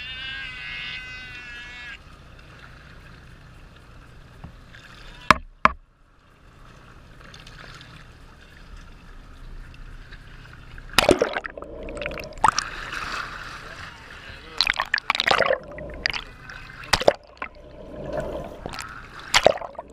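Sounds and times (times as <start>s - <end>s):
water sloshing against camera: 6.7s - 19.9s
water splashing: 10.0s - 19.9s
water slaps: 10.9s - 13.9s, 14.6s - 19.9s.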